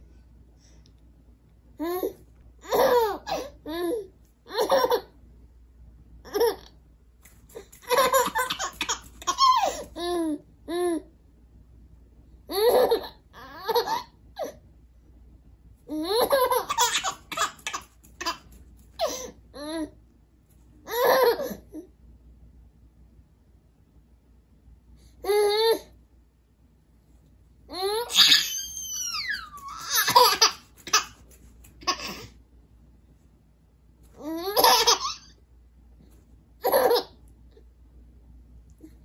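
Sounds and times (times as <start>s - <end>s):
baby laughing: 1.8s - 5.2s, 6.2s - 6.8s, 7.5s - 11.0s, 12.5s - 14.6s, 15.9s - 20.0s, 20.9s - 21.8s, 27.7s - 32.3s, 34.2s - 35.3s, 36.6s - 37.2s.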